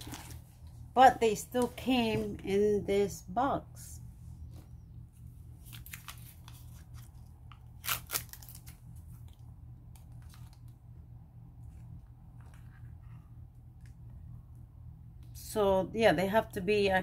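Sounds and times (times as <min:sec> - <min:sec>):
plastic package crinkling: 0:00.0 - 0:00.4, 0:05.6 - 0:10.8
low hum: 0:00.0 - 0:16.9.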